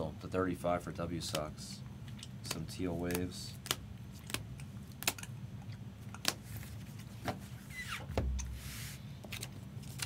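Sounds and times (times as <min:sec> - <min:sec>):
trading cards clicking and tapping: 0:02.4 - 0:05.3.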